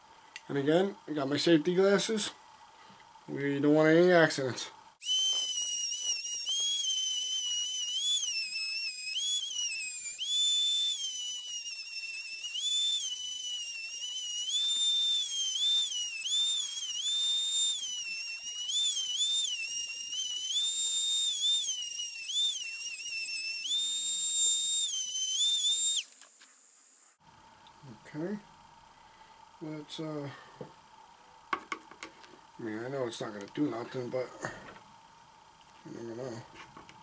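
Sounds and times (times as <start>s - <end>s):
rotary tool cutting metal whine: 5.0s - 26.2s.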